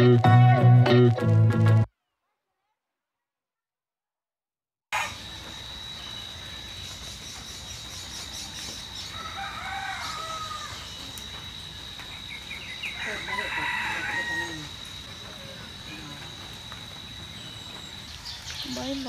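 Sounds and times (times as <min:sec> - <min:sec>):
high-pitched insect drone: 0:05.0 - 0:19.0
rooster crowing: 0:09.0 - 0:11.1, 0:12.7 - 0:16.4.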